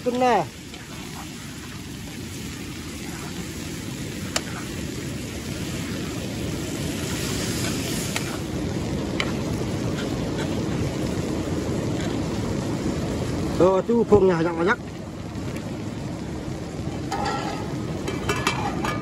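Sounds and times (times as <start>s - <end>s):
meat sizzling in pan: 0.0s - 19.0s
metal ladle clinking on pan: 17.1s - 19.0s.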